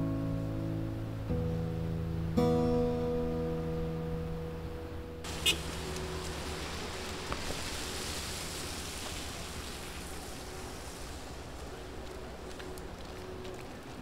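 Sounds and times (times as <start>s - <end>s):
distant traffic hiss: 5.2s - 14.0s.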